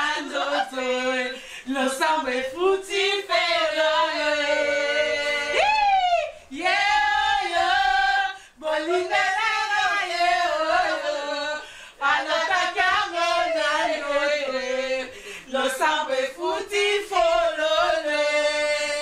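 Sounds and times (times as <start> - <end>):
women singing unaccompanied: 0.0 - 19.0.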